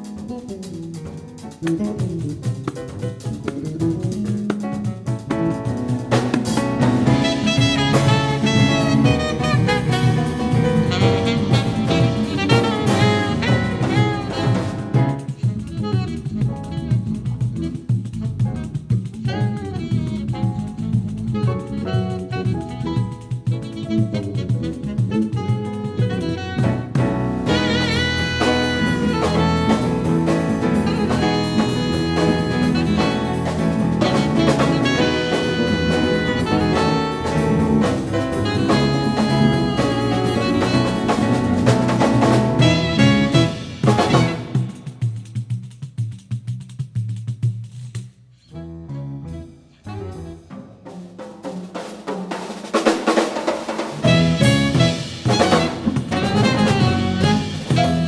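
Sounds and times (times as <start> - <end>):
drum kit: 0.0 - 48.6, 49.2 - 58.0
bass: 0.0 - 58.0
live jazz band: 0.0 - 58.0
saxophone long notes: 7.0 - 17.8, 19.2 - 44.8, 54.0 - 58.0.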